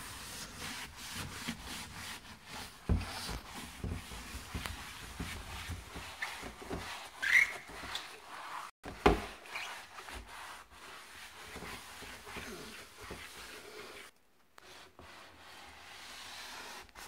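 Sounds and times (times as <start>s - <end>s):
sponge scrubbing wooden door: 0.0s - 14.1s, 14.7s - 17.0s
short squeak: 7.2s - 8.1s.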